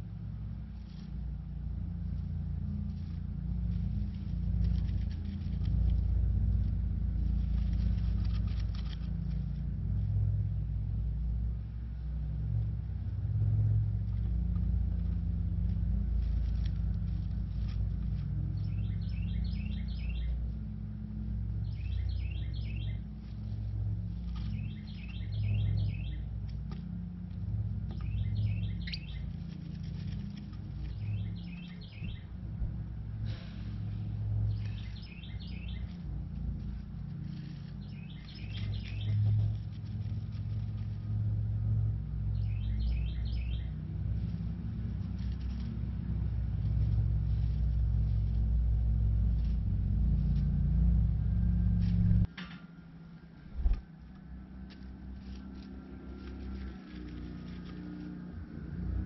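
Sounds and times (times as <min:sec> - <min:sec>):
low engine hum: 0:00.0 - 0:59.0
wren singing: 0:18.0 - 0:23.6, 0:24.2 - 0:27.0, 0:27.6 - 0:32.4, 0:34.3 - 0:39.7, 0:42.0 - 0:44.7.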